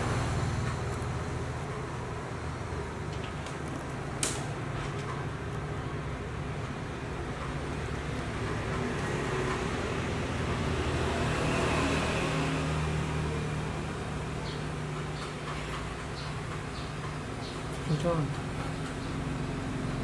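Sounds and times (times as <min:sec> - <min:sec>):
vehicle passing: 0:07.3 - 0:14.8.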